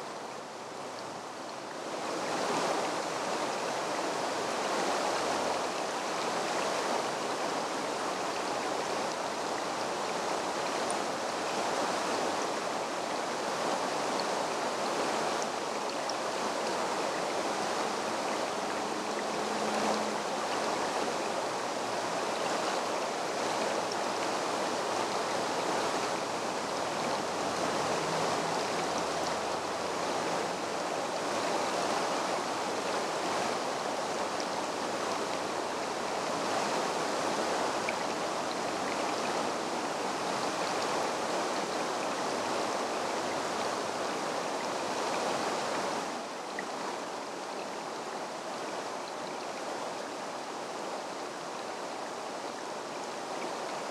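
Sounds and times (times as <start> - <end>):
creek babbling over stones: 0.0 - 53.9.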